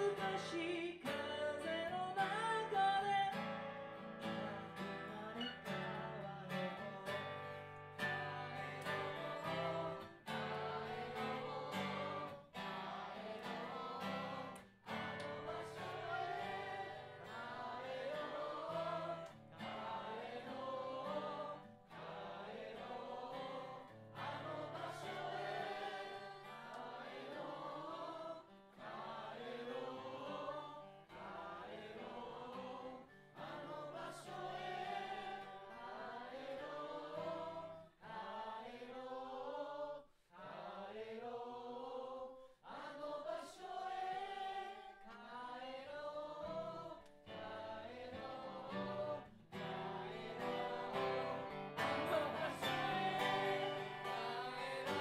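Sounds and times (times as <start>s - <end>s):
guitar accompaniment: 0.0s - 27.4s, 46.5s - 55.0s
group of people singing: 0.0s - 55.0s.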